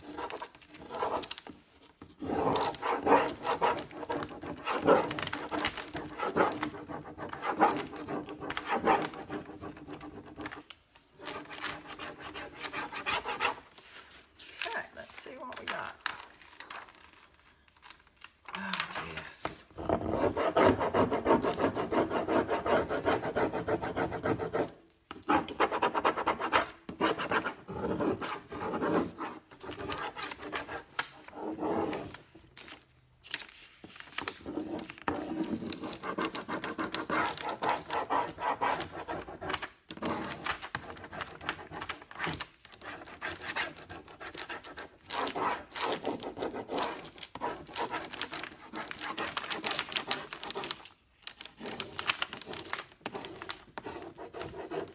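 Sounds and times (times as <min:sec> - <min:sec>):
tool scraping back and forth: 0:01.9 - 0:10.6, 0:11.2 - 0:14.2, 0:19.8 - 0:32.1.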